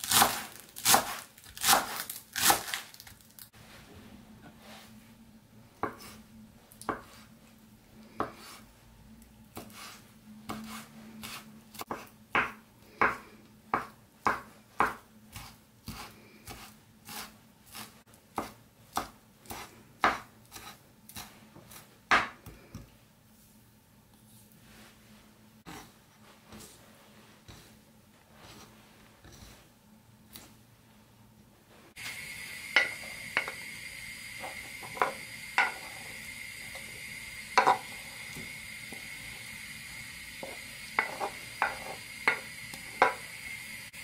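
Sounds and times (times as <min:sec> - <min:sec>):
knife chopping on cutting board: 0:00.0 - 0:02.8, 0:09.6 - 0:22.5
faint steady hum: 0:19.4 - 0:44.0.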